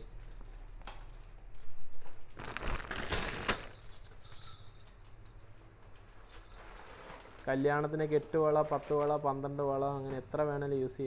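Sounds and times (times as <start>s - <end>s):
bangles clinking and jingling: 0.0s - 1.2s, 3.0s - 7.1s.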